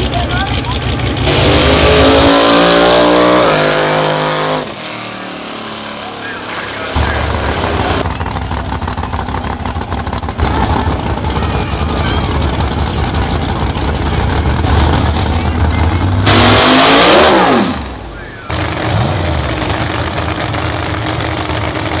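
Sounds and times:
truck engine lumpy idle: 0.0s - 1.3s, 6.1s - 16.3s, 17.8s - 22.0s
racing engine burst: 1.1s - 22.0s.

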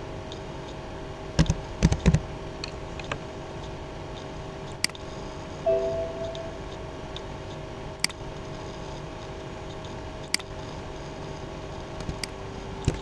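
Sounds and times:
short tone: 5.7s - 6.8s.

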